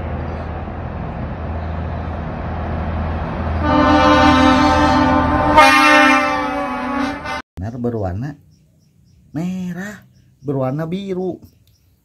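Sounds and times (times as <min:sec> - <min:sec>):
truck engine rumbling: 0:00.0 - 0:07.4
loud horn blast: 0:03.6 - 0:07.4.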